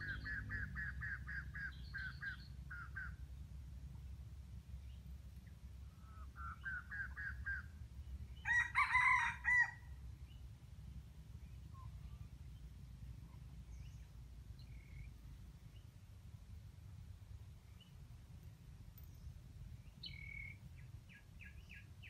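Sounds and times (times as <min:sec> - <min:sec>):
rooster crowing: 0:08.4 - 0:09.9.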